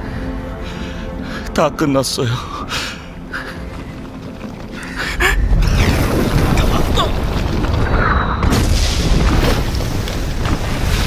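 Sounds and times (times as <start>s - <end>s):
volcano rumbling with booms: 5.4s - 11.0s.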